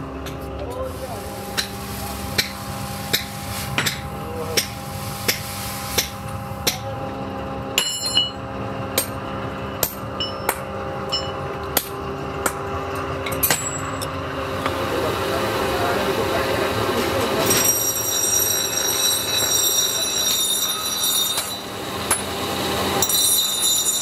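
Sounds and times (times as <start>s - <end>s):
machine hum: 0.0s - 19.7s
hammer blows on metal: 17.4s - 22.4s.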